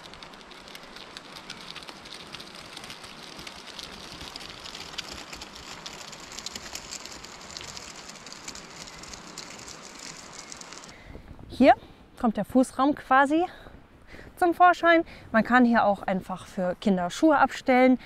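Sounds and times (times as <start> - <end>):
zipper ticking slowly: 0.0 - 10.9.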